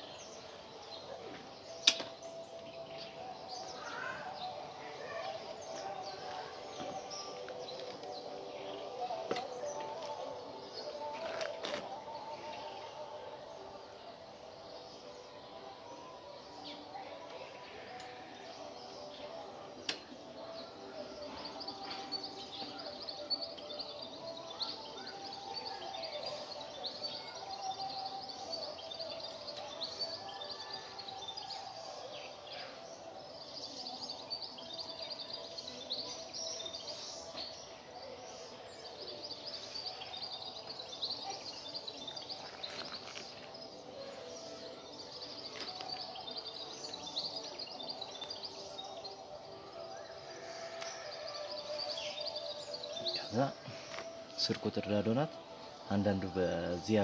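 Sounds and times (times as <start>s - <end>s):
small birds chirping: 0.0s - 57.0s
clicks from bicycle work: 1.8s - 2.1s.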